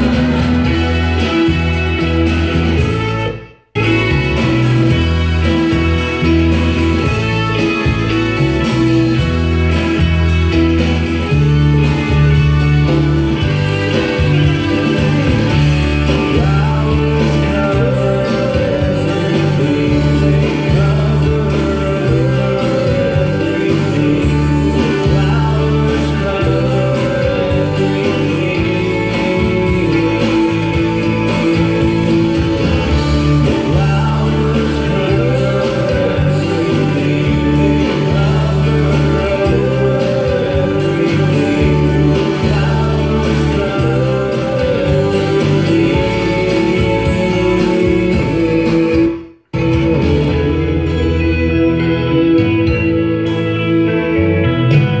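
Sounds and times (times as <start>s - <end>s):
song with guitar and singing: 0.0s - 55.0s.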